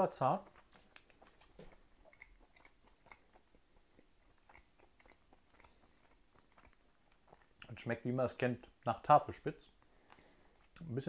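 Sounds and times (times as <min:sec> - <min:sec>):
faint chewing: 0:00.2 - 0:11.0
soft mouth clicks: 0:00.5 - 0:07.7.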